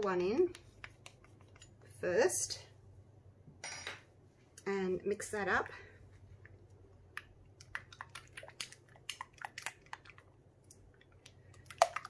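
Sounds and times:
spatula stirring slime in glass bowl: 0.0s - 2.1s, 7.2s - 12.0s.

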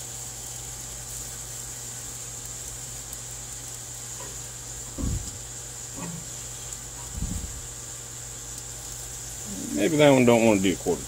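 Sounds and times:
meat sizzling over charcoal: 0.0s - 11.0s
low thumps of tongs turning meat: 4.2s - 7.8s.

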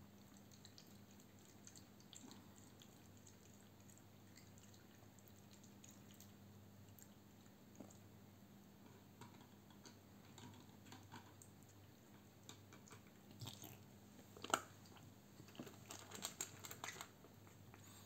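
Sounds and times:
faint low hum: 0.0s - 18.0s
cat lapping water: 0.1s - 8.2s
cat chewing food from metal bowl: 0.2s - 8.1s, 8.8s - 17.9s.

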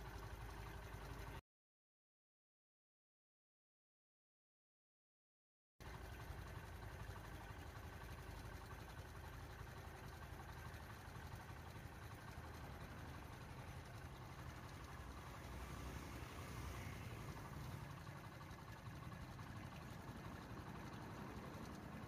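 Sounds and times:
vehicle engine idling: 0.0s - 1.4s, 5.8s - 22.0s.

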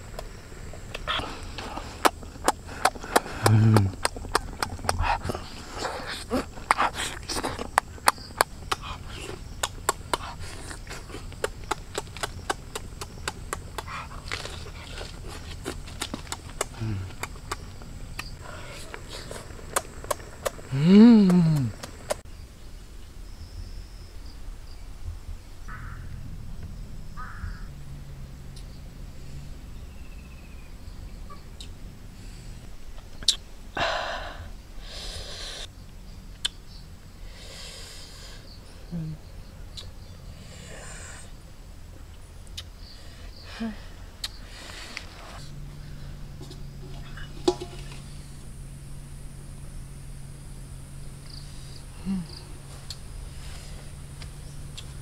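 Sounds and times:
man breathing heavily: 0.9s - 11.4s, 16.5s - 17.4s, 18.4s - 19.6s, 33.8s - 35.7s.

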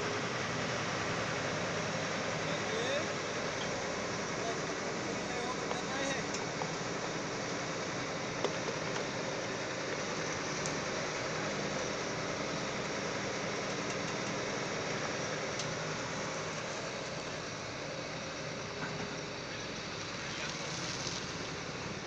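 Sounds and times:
combine harvester diesel engine: 0.0s - 22.0s.

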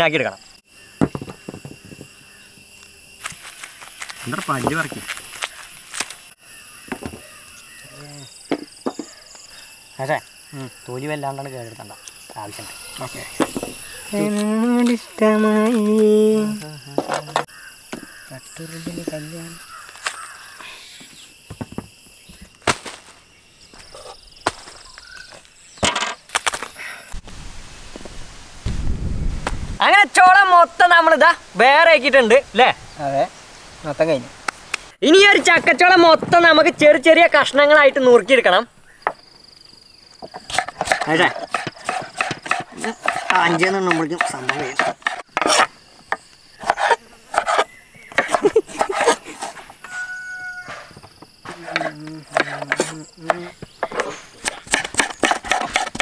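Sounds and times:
knife chopping on wooden board: 40.3s - 45.7s, 46.6s - 49.6s, 51.5s - 56.0s.

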